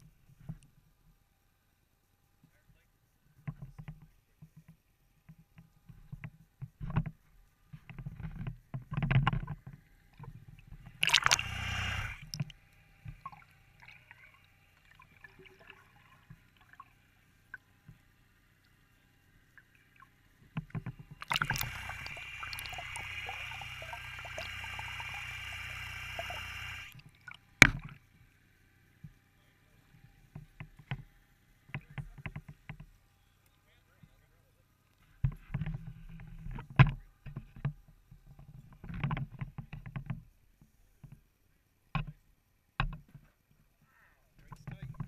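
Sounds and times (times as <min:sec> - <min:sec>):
water sloshing against boat: 0:07.8 - 0:18.0, 0:19.6 - 0:28.1
rushing water: 0:11.0 - 0:12.4, 0:21.2 - 0:27.9.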